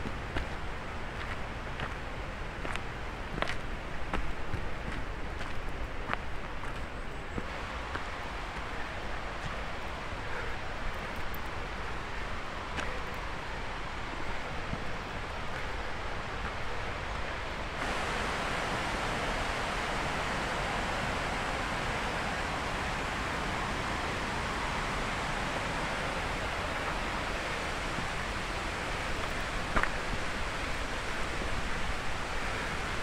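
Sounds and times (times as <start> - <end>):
outdoor rushing noise: 13.8 - 33.0.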